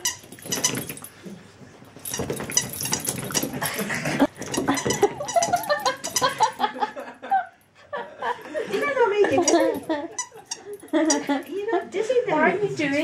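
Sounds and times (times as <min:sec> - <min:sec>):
toy and collar rattling: 0:00.0 - 0:07.1, 0:09.3 - 0:12.4.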